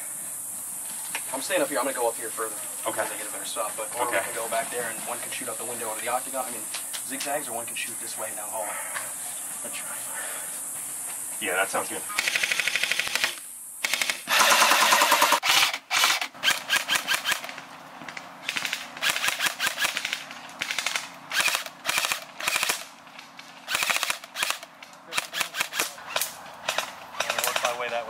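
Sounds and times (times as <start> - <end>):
airsoft rifles firing bursts: 12.1 - 17.6, 18.4 - 23.0, 23.7 - 27.9.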